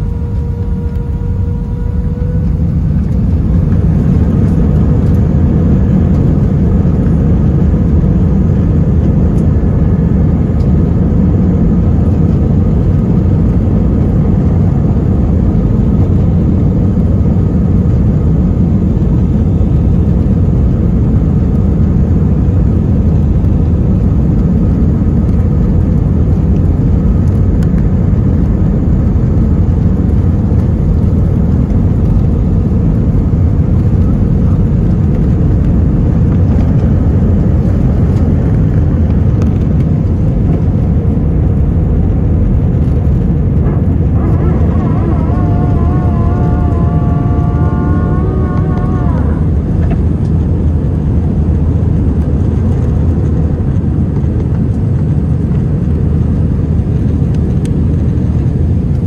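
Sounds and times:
jet engines rumbling: 0.0 - 59.0.

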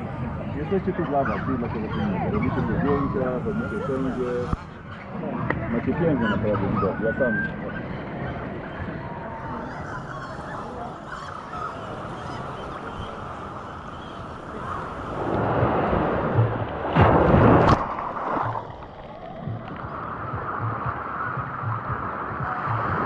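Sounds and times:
seawater sloshing and lapping: 12.3 - 21.4.

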